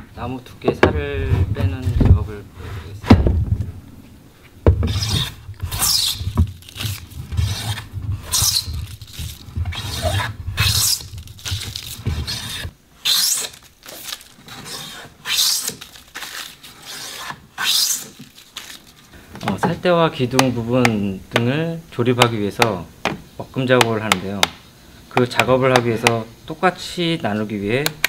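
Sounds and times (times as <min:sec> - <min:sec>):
hand plane shaving wood: 0:07.4 - 0:08.7.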